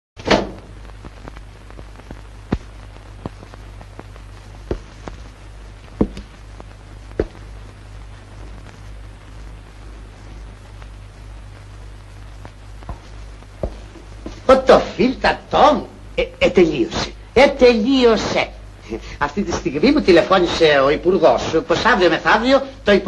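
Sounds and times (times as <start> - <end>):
film soundtrack hum and hiss: 0.2 - 23.0.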